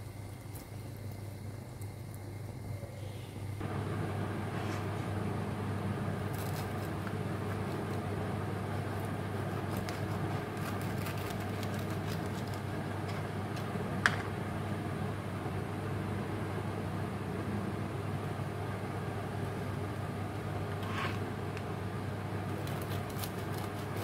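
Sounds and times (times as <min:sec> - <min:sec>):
knife crunching through fried crust: 0:06.3 - 0:08.0, 0:08.8 - 0:12.7, 0:22.5 - 0:24.0.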